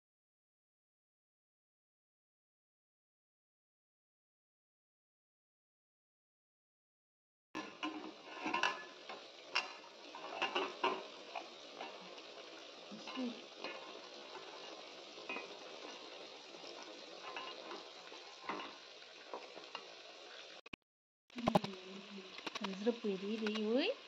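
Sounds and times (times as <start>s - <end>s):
wooden spatula scraping a pot: 7.6s - 20.5s
vegetables sizzling in a pot: 7.6s - 20.6s, 21.3s - 24.0s.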